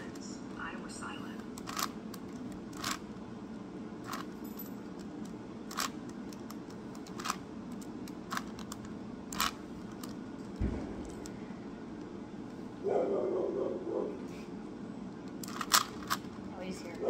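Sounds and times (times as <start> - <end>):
puzzle cube clacking: 1.4 - 3.1, 4.0 - 11.3, 15.3 - 16.3
dull low thump: 10.6 - 11.1.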